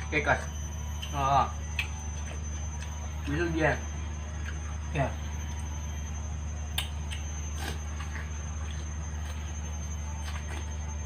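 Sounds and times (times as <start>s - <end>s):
faint high steady tone: 0.0s - 11.0s
steady low hum: 0.0s - 11.0s
wet bites of watermelon: 6.7s - 11.0s.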